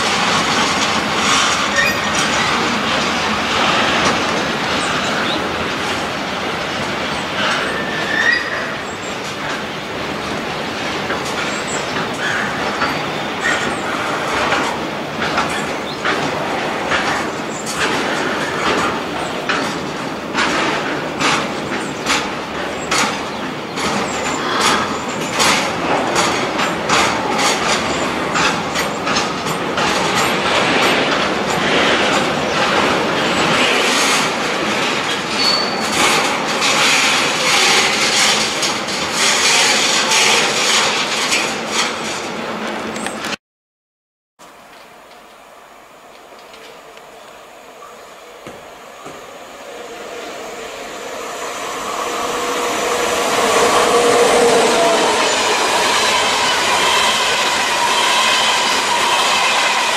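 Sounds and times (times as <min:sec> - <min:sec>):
freight train rolling past: 0:00.0 - 0:43.4, 0:44.5 - 0:59.9
wheels clacking over rail joints: 0:00.0 - 0:43.4, 0:46.2 - 0:59.9
train wheel squeal: 0:01.3 - 0:03.0, 0:07.0 - 0:09.6, 0:11.3 - 0:16.0, 0:21.3 - 0:42.2, 0:47.8 - 0:59.9.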